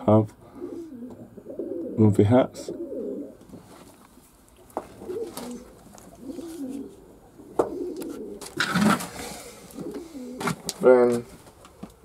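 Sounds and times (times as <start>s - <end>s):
pigeons cooing: 0.4s - 3.6s, 4.8s - 11.1s
rustle with a thump: 3.4s - 5.7s.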